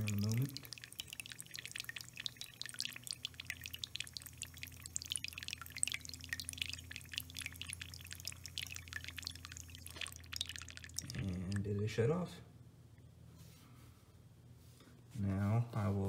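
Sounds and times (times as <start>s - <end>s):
water trickling into bowl: 0.0s - 12.0s
low steady hum: 0.0s - 16.0s.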